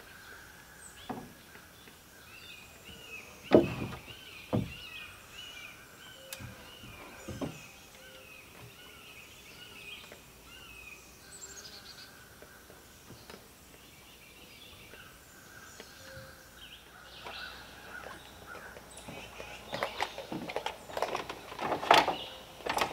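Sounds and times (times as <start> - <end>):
songbirds chirping: 0.0 - 22.9
faint knocks: 3.5 - 5.0.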